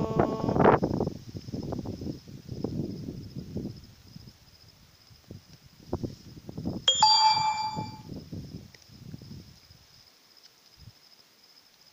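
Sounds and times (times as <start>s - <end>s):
insects chirring: 0.0s - 7.0s, 8.1s - 11.9s
bright metallic ding: 6.9s - 8.1s.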